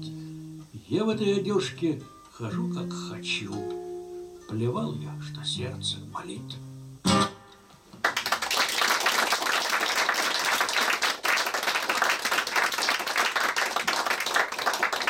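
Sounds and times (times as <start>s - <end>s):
guitar chord: 2.0s - 7.7s
audience applauding: 8.0s - 15.0s.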